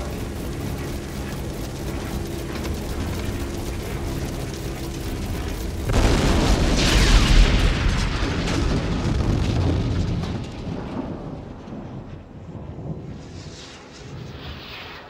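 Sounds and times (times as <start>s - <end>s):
piston engine drone: 0.0s - 12.0s
fireball whoosh and rumble: 1.2s - 15.0s.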